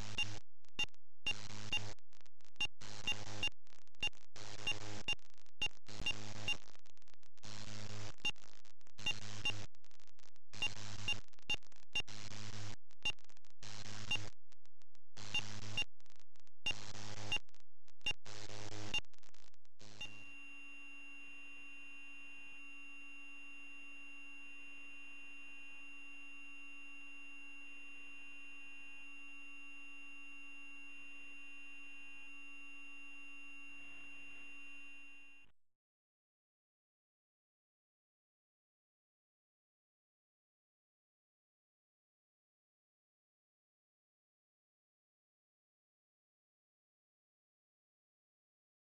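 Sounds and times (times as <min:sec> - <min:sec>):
electronic buzz and hiss: 0:00.0 - 0:02.0, 0:02.8 - 0:14.4, 0:15.2 - 0:15.9, 0:16.7 - 0:35.5
steady electronic whine: 0:18.1 - 0:35.4.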